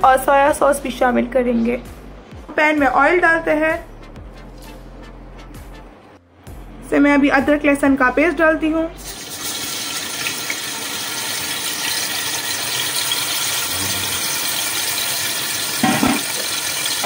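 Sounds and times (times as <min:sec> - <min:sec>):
paste sizzling in hot oil: 0:09.0 - 0:17.0.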